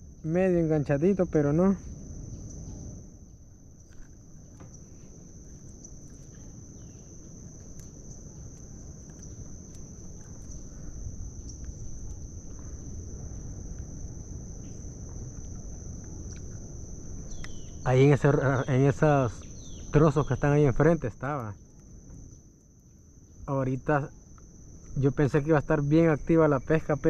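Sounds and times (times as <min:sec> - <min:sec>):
high-pitched insect chorus: 0:00.0 - 0:27.0
faint ticks: 0:07.6 - 0:10.7.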